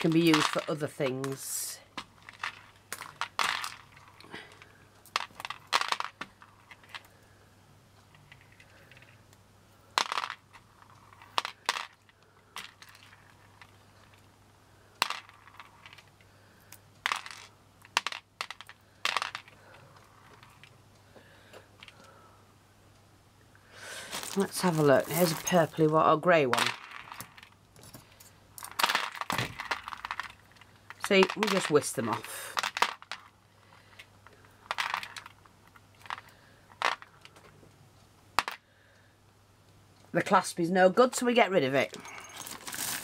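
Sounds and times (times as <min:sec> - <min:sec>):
beads clicking: 0:00.0 - 0:07.4, 0:08.0 - 0:22.2, 0:24.0 - 0:37.5, 0:41.8 - 0:43.0.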